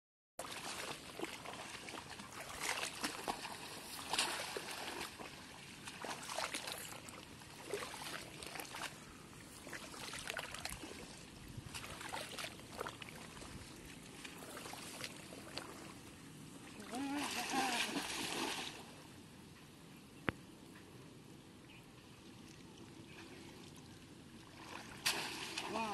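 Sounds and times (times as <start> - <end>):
shallow water splashing: 0.4 - 16.0, 16.6 - 19.0, 24.4 - 25.9.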